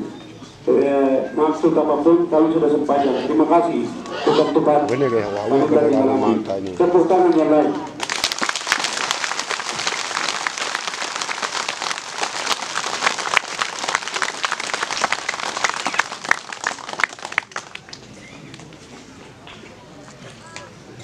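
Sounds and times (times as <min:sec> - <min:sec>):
crowd applauding: 0:08.0 - 0:18.8.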